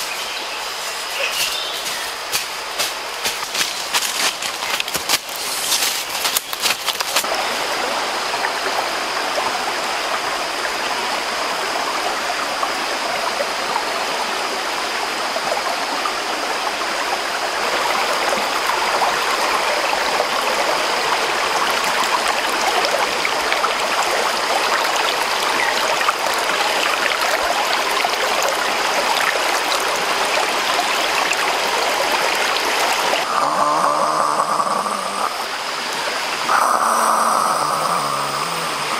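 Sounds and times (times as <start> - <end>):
stream running over rocks: 0.0 - 38.9
footsteps through leaf litter: 0.1 - 7.3.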